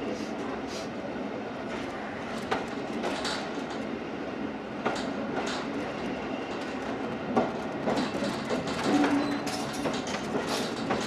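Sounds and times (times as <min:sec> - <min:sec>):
train wheels rumbling on rail: 0:00.0 - 0:11.0
wheels clacking over rail joints: 0:06.5 - 0:11.0.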